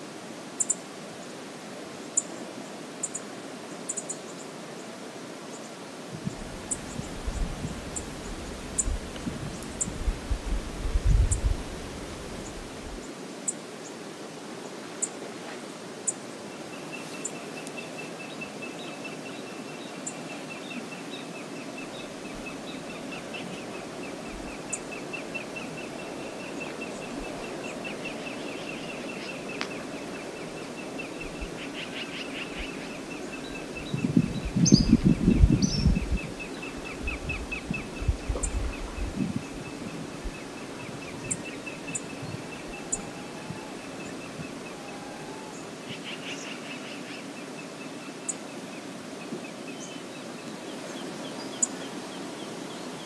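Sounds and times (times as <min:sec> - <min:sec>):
wind: 0:00.0 - 0:53.0
wind buffeting microphone: 0:06.1 - 0:13.0, 0:33.4 - 0:44.7.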